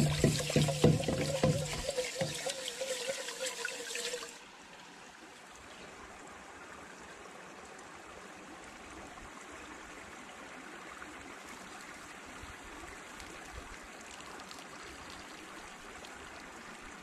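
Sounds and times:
hands swishing rice in water: 0:00.0 - 0:04.3
flowing water: 0:00.0 - 0:17.0.

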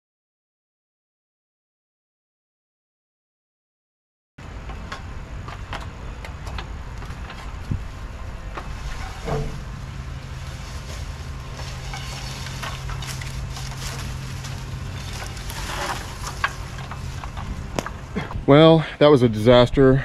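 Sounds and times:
motor humming: 0:04.4 - 0:18.3.

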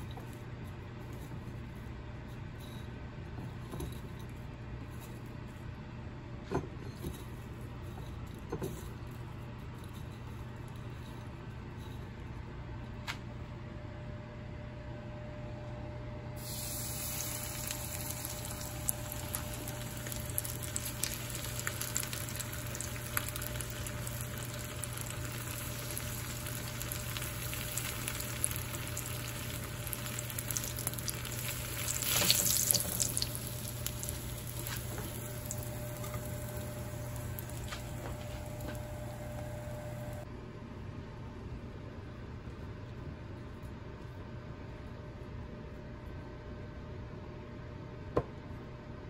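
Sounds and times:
oil sizzling in frying pan: 0:16.4 - 0:40.2.

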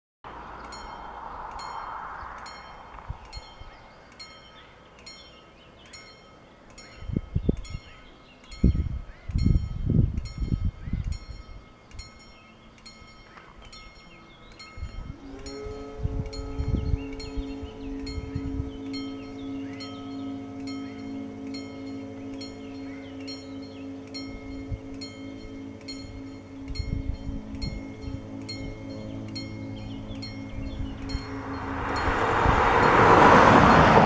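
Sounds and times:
level crossing bell ringing: 0:11.2 - 0:34.0
low rumble: 0:14.0 - 0:34.0.

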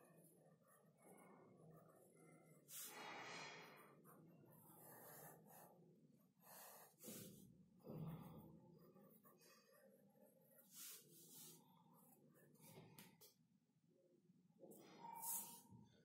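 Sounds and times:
pencil scratching on paper: 0:00.0 - 0:13.1
soft breaths through nose: 0:02.7 - 0:04.0.

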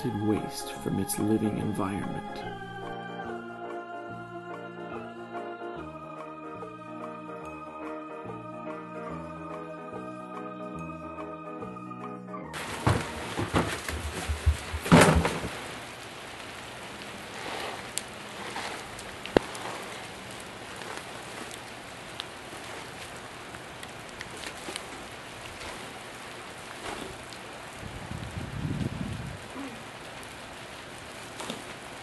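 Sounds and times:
rain hissing outdoors: 0:00.0 - 0:03.4, 0:12.6 - 0:32.0
plastic garbage bag rustling: 0:12.6 - 0:16.0, 0:17.1 - 0:23.6.

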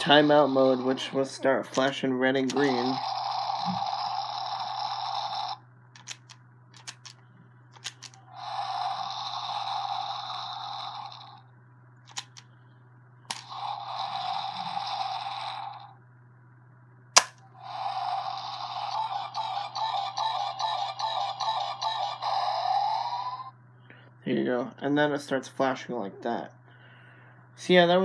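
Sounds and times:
toy electronic sound effects: 0:00.0 - 0:07.2, 0:07.8 - 0:11.4, 0:12.1 - 0:12.4, 0:13.3 - 0:15.9, 0:17.2 - 0:23.5
plastic clicks from handling toy: 0:06.0 - 0:07.2, 0:07.8 - 0:08.2, 0:12.1 - 0:12.5, 0:13.3 - 0:13.5.

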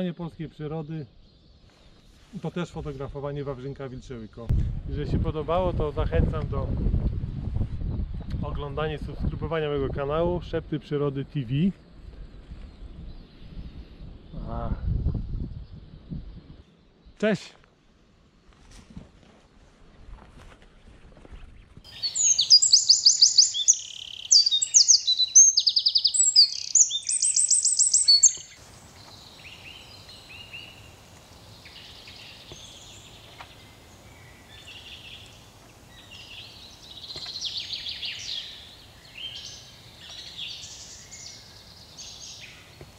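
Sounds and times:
faint bird calls: 0:21.9 - 0:42.9
songbird trilling: 0:21.9 - 0:42.9.

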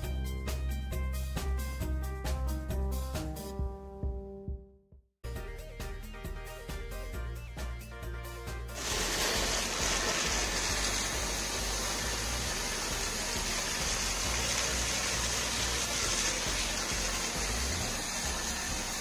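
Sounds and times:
foam spray hissing: 0:08.8 - 0:19.0.

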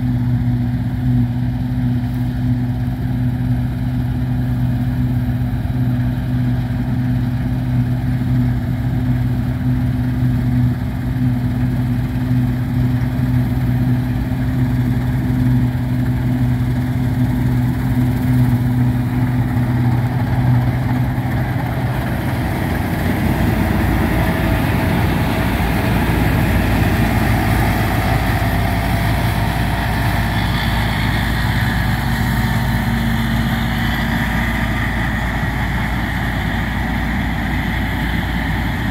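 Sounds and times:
combine harvester engine hum: 0:00.0 - 0:38.9
harvester rushing noise: 0:12.1 - 0:38.9.

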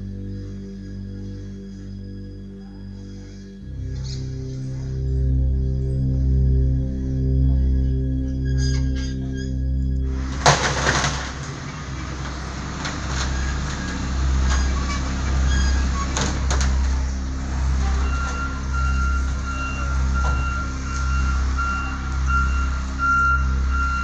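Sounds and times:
reversing alarm beeping: 0:08.4 - 0:24.0
heavy machine engine running: 0:09.7 - 0:24.0.

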